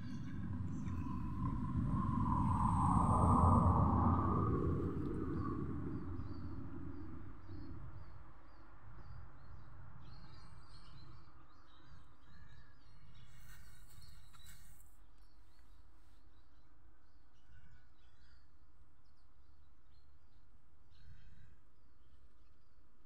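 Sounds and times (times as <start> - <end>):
low rumble of outdoor noise: 0.0 - 23.0
small birds chirping: 5.0 - 22.8.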